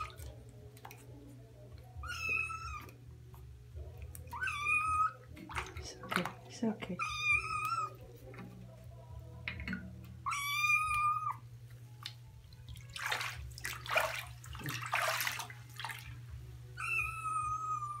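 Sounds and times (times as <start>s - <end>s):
water splashing in bathtub: 0.0s - 1.4s, 4.0s - 8.5s, 9.4s - 16.4s
kitten meowing: 2.0s - 3.0s, 4.3s - 5.2s, 7.0s - 8.0s, 10.2s - 11.4s, 16.8s - 18.0s.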